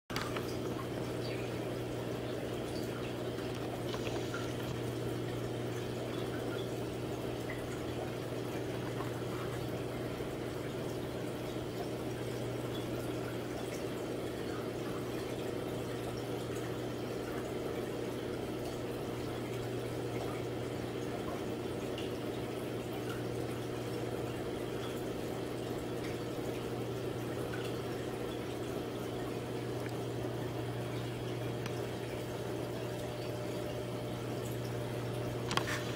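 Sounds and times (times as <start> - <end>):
aquarium pump humming: 0.1 - 35.9
water trickling and bubbling: 0.1 - 35.9.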